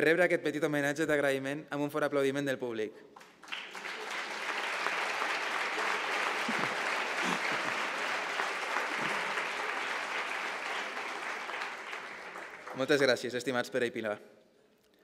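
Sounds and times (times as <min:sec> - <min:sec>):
crowd applauding: 0:03.2 - 0:13.5.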